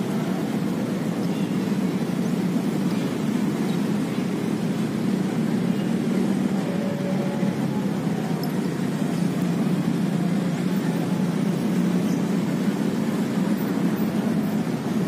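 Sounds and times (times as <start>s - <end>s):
road traffic hum: 0.0s - 15.0s.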